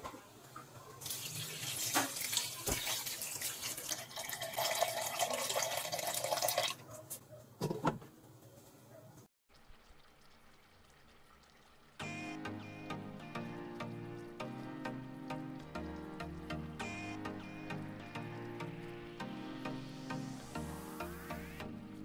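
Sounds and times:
water pouring into a pot: 0:01.0 - 0:06.8, 0:09.5 - 0:12.2.

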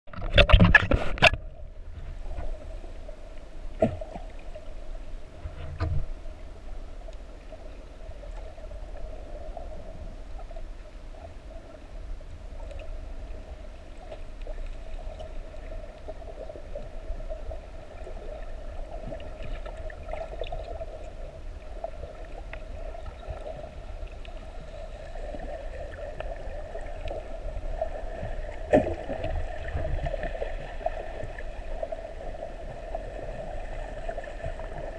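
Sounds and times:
underwater droning hum: 0:00.1 - 0:34.9
rush of bubbles and water: 0:12.5 - 0:34.9.

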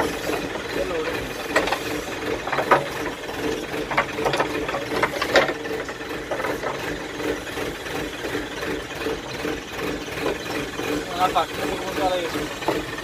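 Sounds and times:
metallic clicks and clanks: 0:00.0 - 0:07.1
diesel engine running: 0:00.0 - 0:13.0.

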